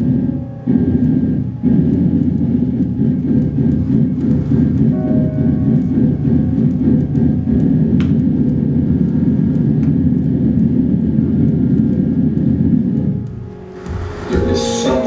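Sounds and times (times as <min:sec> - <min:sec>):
loud low rumble: 0:00.0 - 0:15.0.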